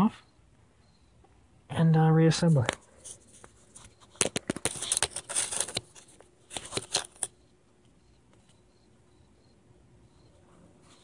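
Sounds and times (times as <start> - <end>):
handling clicks and rustles: 2.5 - 7.4.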